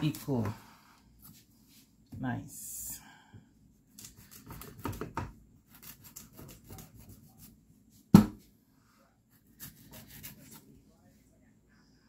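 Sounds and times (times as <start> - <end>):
knife cutting watermelon rind: 3.9 - 7.6, 9.3 - 10.7.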